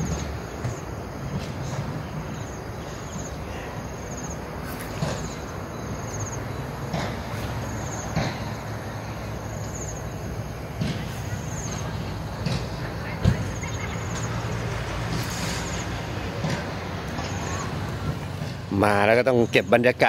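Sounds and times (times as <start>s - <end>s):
insect chirping in high trills: 0.0s - 6.9s, 7.5s - 10.6s.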